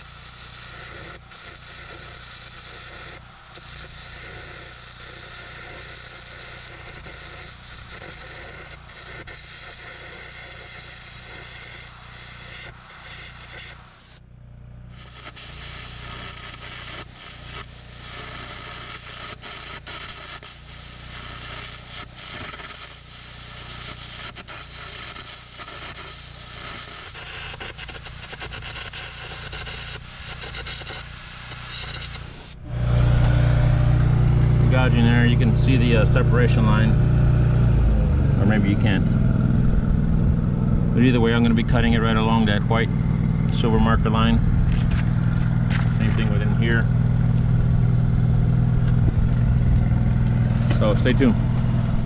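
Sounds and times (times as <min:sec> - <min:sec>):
arc crackling and hissing: 0:00.0 - 0:52.0
steady low hum: 0:31.7 - 0:52.0.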